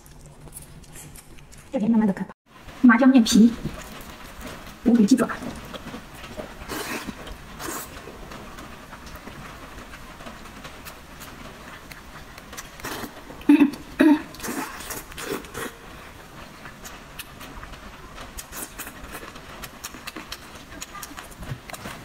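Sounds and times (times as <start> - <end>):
wet mouth clicks and chewing: 0.0 - 1.9, 11.6 - 15.8, 18.4 - 22.0
noodle slurps: 14.3 - 15.8.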